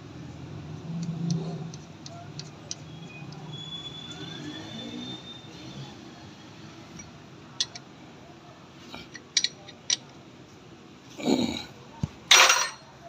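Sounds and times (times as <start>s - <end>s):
faint steady background noise: 0.0s - 13.0s
light metallic clicks of tools: 0.8s - 4.2s, 6.9s - 7.9s, 9.0s - 10.2s.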